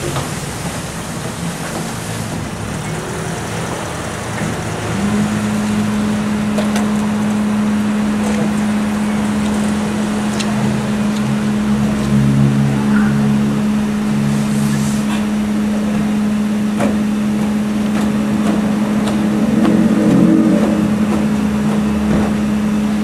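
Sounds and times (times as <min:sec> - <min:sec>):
car engine idling: 0:00.0 - 0:23.0.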